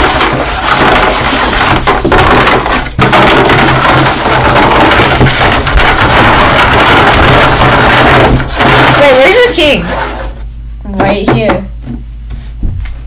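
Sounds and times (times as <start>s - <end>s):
plastic toys clattering on wood: 0.0s - 10.2s.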